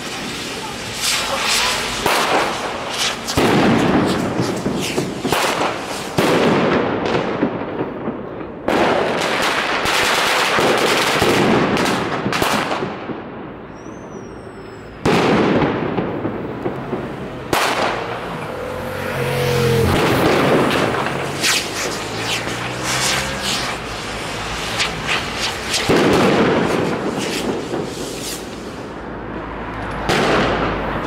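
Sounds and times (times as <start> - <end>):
hissing crackling spray: 0.0 - 6.2, 17.0 - 29.1
fireworks bursts: 0.0 - 13.2, 15.0 - 29.1
rapid sharp pops: 19.9 - 28.7.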